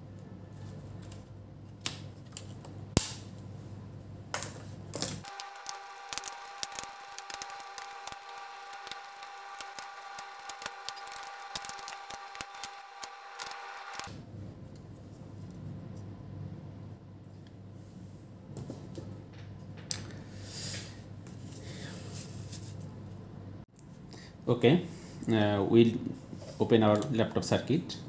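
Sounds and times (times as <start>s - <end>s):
screwdriver turning screws: 5.2s - 14.1s.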